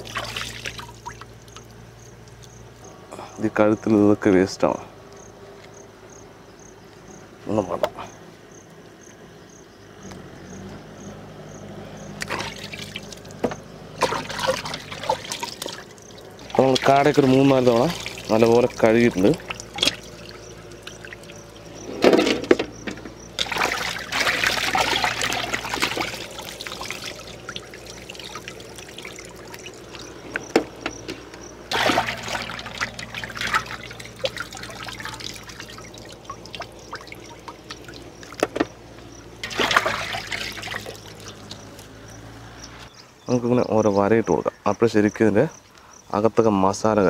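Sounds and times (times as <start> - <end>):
water splashing and trickling: 0.0 - 3.3, 12.0 - 43.0.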